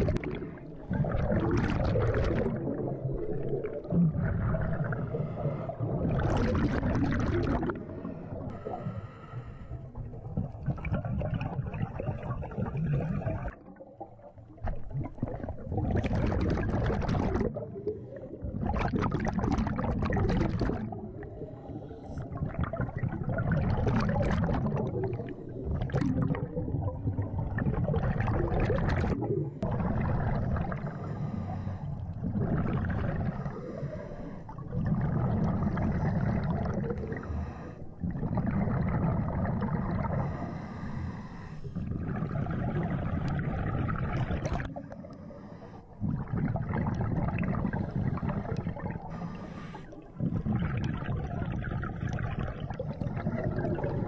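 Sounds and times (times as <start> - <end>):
exhaled air bubbling: 0.0 - 54.0
regulator hissing inhale: 8.5 - 9.9, 30.9 - 32.0, 33.4 - 34.5, 37.1 - 38.0, 40.1 - 41.8, 45.0 - 46.0, 49.0 - 50.0.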